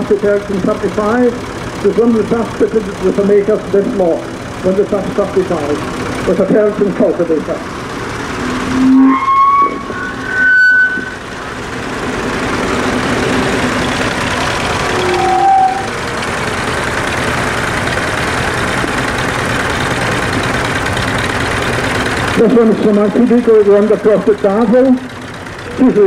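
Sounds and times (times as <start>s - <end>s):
tractor engines running: 0.0s - 26.0s
short steady tones: 8.4s - 11.9s, 14.5s - 16.2s.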